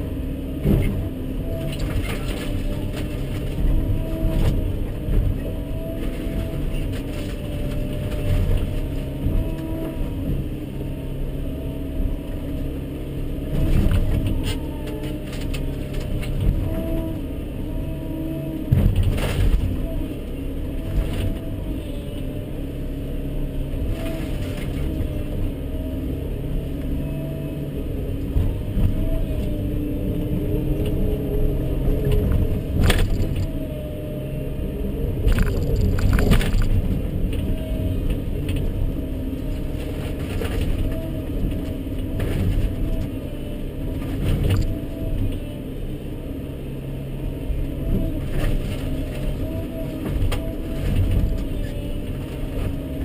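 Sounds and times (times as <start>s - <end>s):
diesel engine under load: 0.0s - 53.0s
hydraulics working: 28.4s - 42.4s
breaking timber cracks and knocks: 32.8s - 33.5s, 35.2s - 37.0s.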